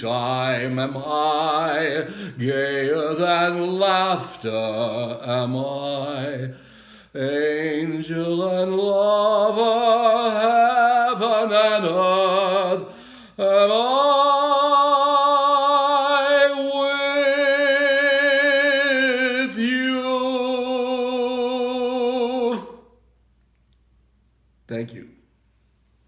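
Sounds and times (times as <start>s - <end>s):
man singing unaccompanied: 0.0s - 22.9s.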